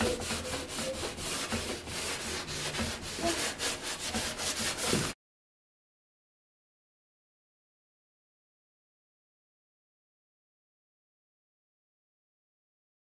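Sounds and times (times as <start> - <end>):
sponge scrubbing stovetop: 0.0 - 5.2.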